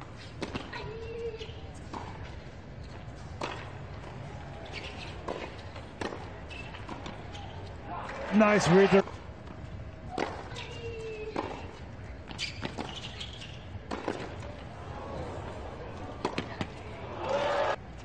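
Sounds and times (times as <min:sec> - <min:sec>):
low stadium background: 0:00.0 - 0:18.0
racket striking tennis ball: 0:13.9 - 0:14.5.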